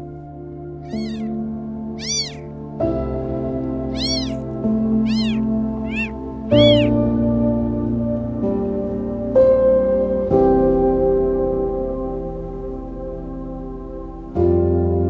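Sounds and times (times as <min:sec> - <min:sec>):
soft background music: 0:00.0 - 0:15.0
kitten mewing: 0:00.9 - 0:01.3, 0:02.0 - 0:02.4, 0:03.9 - 0:04.4, 0:05.0 - 0:07.0.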